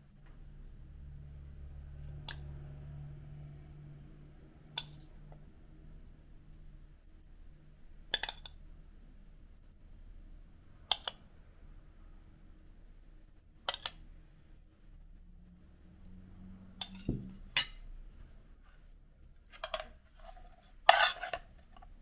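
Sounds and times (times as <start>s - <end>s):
metal spoon clinking on bowl: 16.8s - 17.8s.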